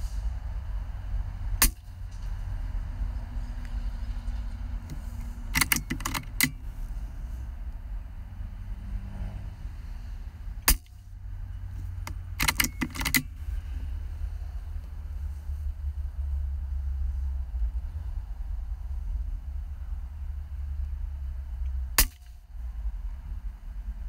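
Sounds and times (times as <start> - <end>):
air rifle action clicks: 4.8 - 6.7, 11.8 - 13.3
low rumble: 13.2 - 24.0.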